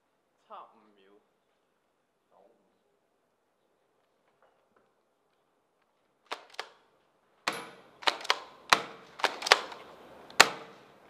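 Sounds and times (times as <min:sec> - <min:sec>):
airsoft shotgun shots: 0:07.5 - 0:10.8.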